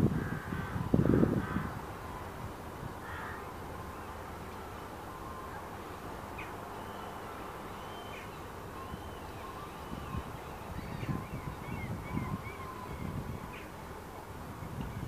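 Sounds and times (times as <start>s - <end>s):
steady outdoor hiss: 0.0s - 15.0s
faint bird chirps: 6.4s - 13.7s.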